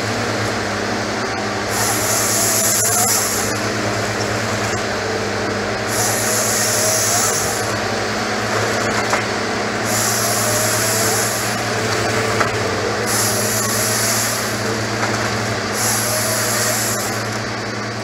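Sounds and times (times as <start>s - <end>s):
diesel engines running: 0.0s - 18.0s
high hydraulic hiss: 1.7s - 3.7s, 5.8s - 7.8s, 9.8s - 11.7s, 13.0s - 14.7s, 15.7s - 17.4s.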